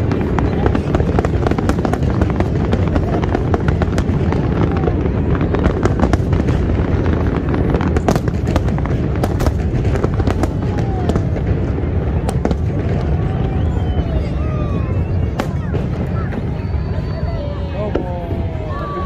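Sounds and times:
fireworks crackling: 0.0 - 19.0.

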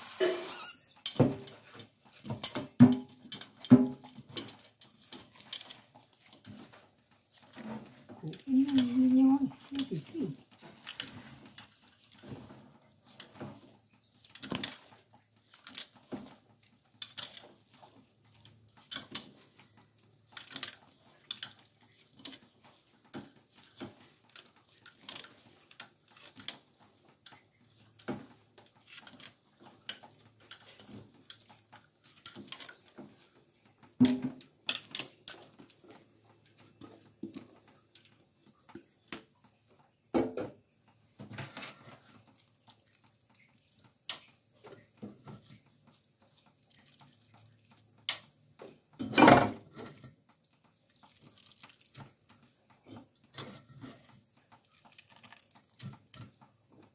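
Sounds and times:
wet coconut squelching: 5.3 - 11.1.

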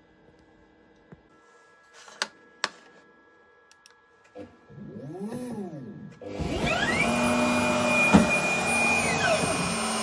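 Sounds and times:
router motors humming: 4.7 - 10.0.

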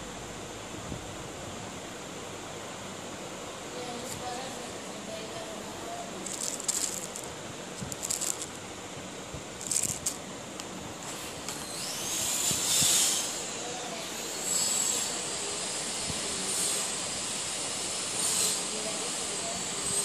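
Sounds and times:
plastic packaging crinkling: 6.2 - 8.6, 9.6 - 10.2
hiss with high whistle: 11.2 - 20.0.

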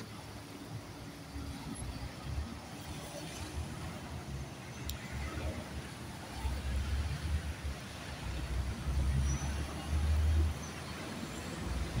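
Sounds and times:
cars passing on wet road: 0.0 - 12.0.

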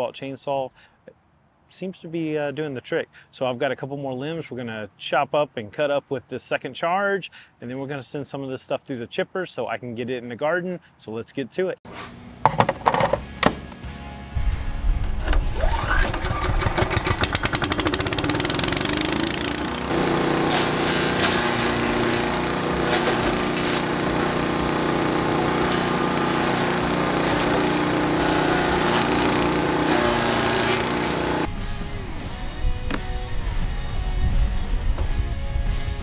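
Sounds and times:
background music: 13.0 - 16.4, 30.0 - 36.0
small gas engine running: 15.2 - 31.5.

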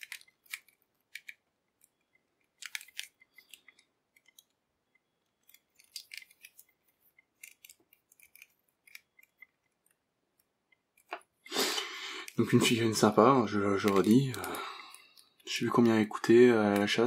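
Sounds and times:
plastic figure clicks and scrapes: 0.0 - 11.5.

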